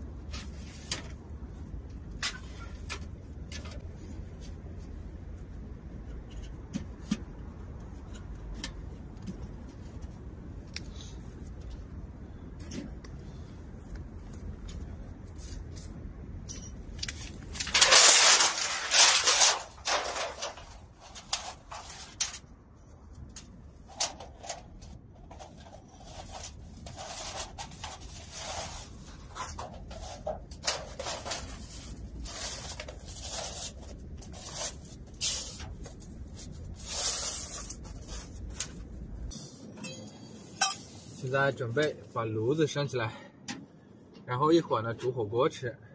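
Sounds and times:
low steady rumble: 0:00.0 - 0:45.9
metal stovepipe scraping: 0:17.6 - 0:22.5, 0:39.3 - 0:41.2.

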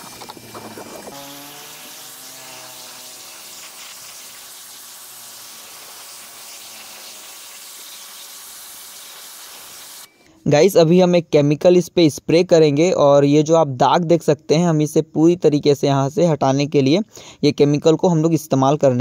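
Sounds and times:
spray hissing: 0:00.0 - 0:10.1.

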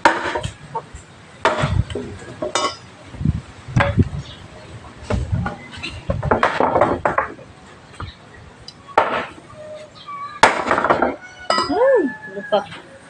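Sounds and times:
metallic clink: 0:11.5 - 0:11.8.

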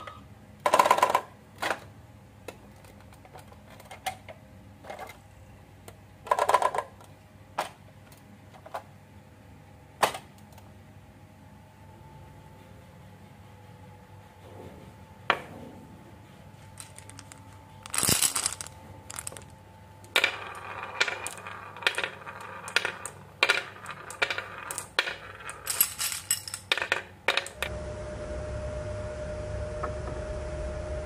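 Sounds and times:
steady low hum: 0:07.1 - 0:24.1, 0:27.6 - 0:31.0
marbles clacking down a marble run: 0:16.8 - 0:19.5, 0:20.1 - 0:27.6.

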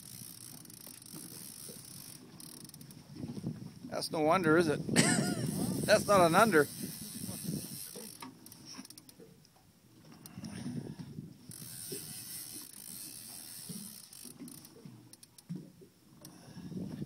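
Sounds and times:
fishing reel gears grinding: 0:00.0 - 0:03.0, 0:05.0 - 0:09.2, 0:11.5 - 0:15.5.

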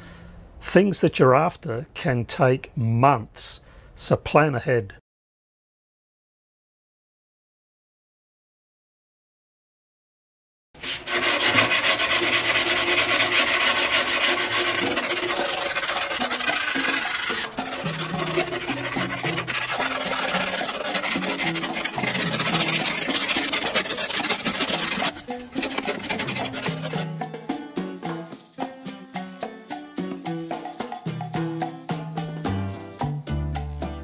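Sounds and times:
latin-style background music: 0:10.8 - 0:34.0.

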